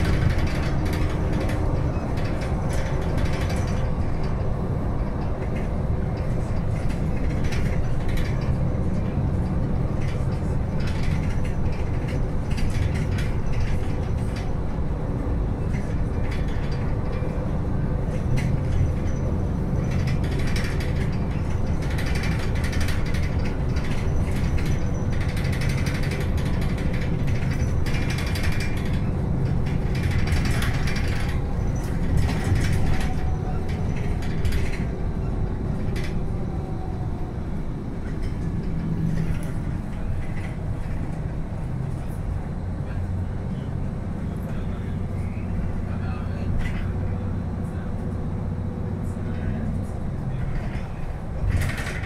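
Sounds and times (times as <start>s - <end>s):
interior fittings clicking and rattling: 0.0s - 14.8s, 15.6s - 37.0s, 37.9s - 42.2s, 49.3s - 52.0s
bus rumble: 0.0s - 52.0s.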